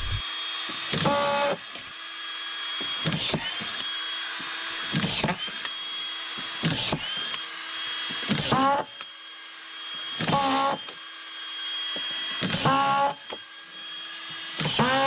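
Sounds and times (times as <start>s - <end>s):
screwdriver driving screws: 0.0s - 9.2s, 9.8s - 15.0s
screwdriver whining: 0.0s - 15.0s.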